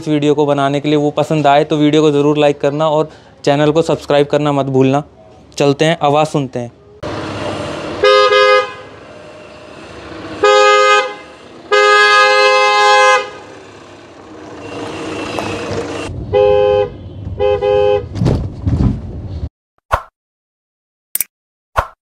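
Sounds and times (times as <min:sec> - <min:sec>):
two-tone car horn honking: 0:07.8 - 0:18.1.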